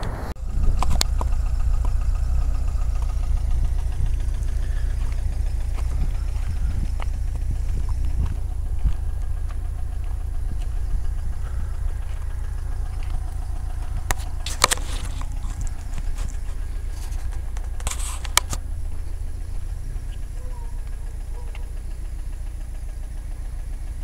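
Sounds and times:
sharp clicks: 0.0s - 2.1s, 2.9s - 18.7s
car engine and road rumble: 0.0s - 24.0s.

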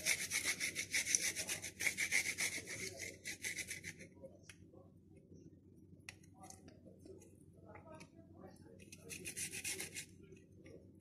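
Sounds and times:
garlic grating on metal grater: 0.0s - 4.0s, 8.9s - 10.1s.

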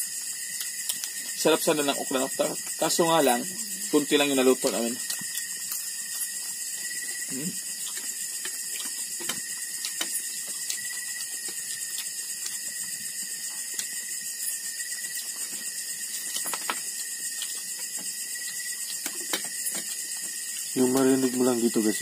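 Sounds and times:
crickets trilling: 0.0s - 22.0s
clicks and knocks from eating: 7.8s - 12.8s, 15.4s - 21.1s.

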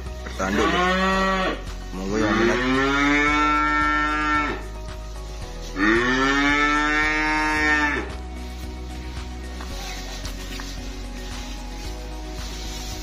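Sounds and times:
calf mooing: 0.5s - 4.6s, 5.8s - 8.1s.

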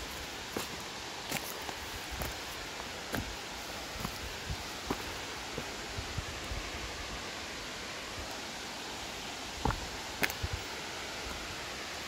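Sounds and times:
footsteps on loose stones: 0.0s - 3.4s, 4.0s - 5.1s
steady rushing hiss: 0.0s - 12.0s.

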